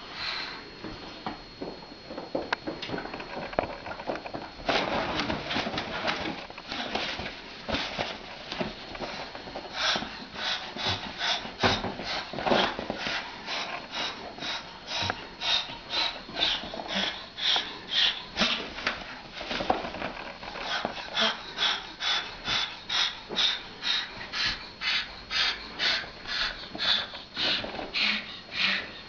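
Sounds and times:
rustling and scuffling: 0.8 - 21.7
cockatoo hissing: 20.6 - 29.0.

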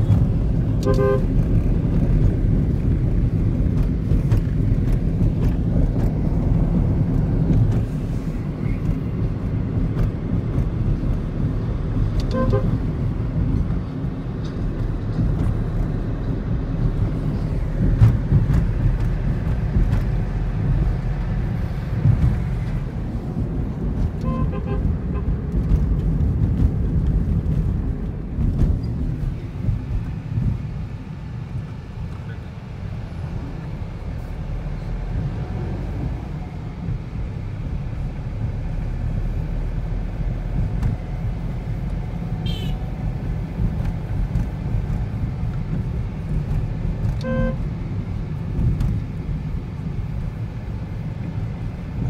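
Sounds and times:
road and wind noise inside car: 0.0 - 52.0
vehicle horn toots: 0.8 - 1.3, 12.2 - 12.8, 24.2 - 25.3, 42.4 - 42.8, 47.2 - 47.6.

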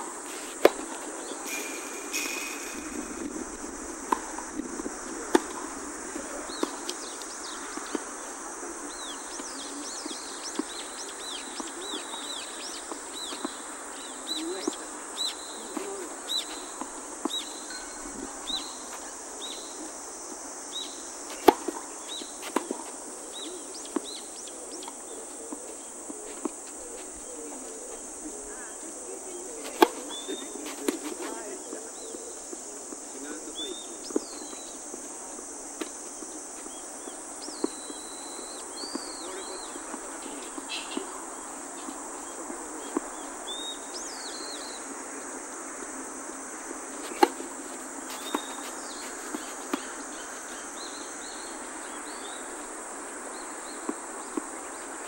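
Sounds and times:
high insect drone: 0.0 - 55.0
rackets hitting tennis balls: 0.1 - 8.3, 21.2 - 23.1, 29.6 - 31.4, 47.0 - 50.8
bird chirping: 1.1 - 4.1, 48.1 - 52.4.

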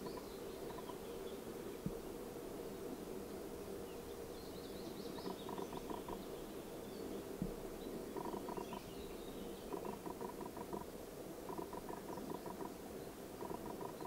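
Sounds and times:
faint birdsong: 0.0 - 14.0
outdoor background noise: 0.0 - 14.0.

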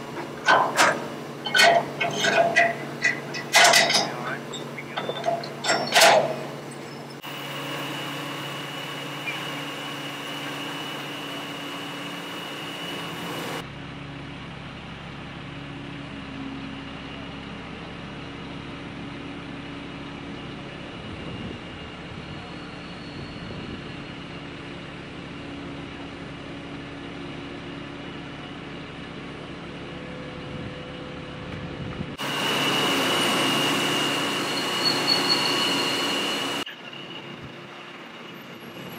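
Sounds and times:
metal clanks: 0.0 - 7.2
crane diesel engine running: 0.0 - 38.9.

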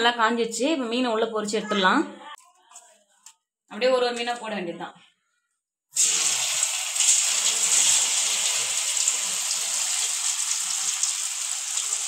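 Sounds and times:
fish sizzling in hot oil: 6.0 - 12.0.

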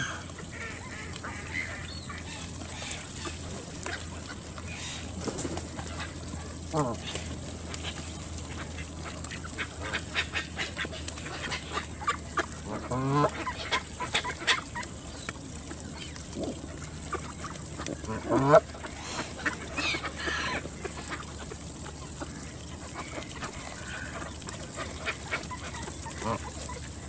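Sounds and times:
higher bird calls: 0.0 - 5.2
geese honking: 0.0 - 27.0.

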